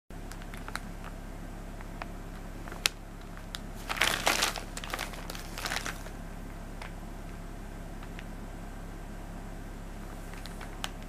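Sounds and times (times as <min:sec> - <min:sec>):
plastic bag crinkling: 0:00.2 - 0:01.2, 0:01.8 - 0:06.2, 0:10.2 - 0:11.0.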